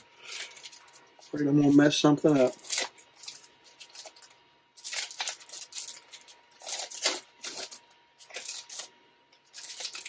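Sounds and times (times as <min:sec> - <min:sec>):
foil wrapper crinkling and tearing: 0:00.2 - 0:10.0.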